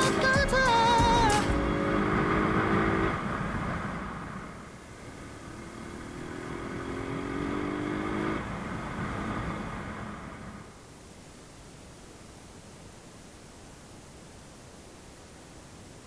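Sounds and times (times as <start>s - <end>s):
motorcycle engine accelerating: 0.0s - 10.6s
wind and road noise: 1.4s - 10.8s.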